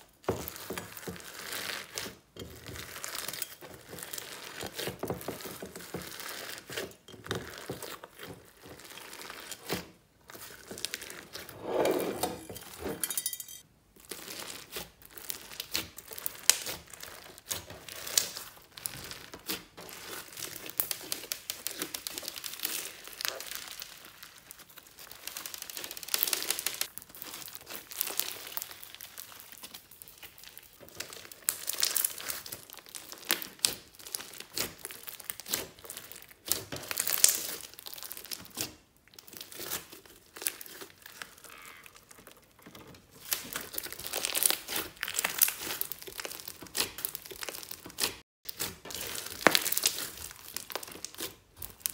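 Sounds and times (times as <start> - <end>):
beaded slime popping and crackling: 14.0 - 51.9.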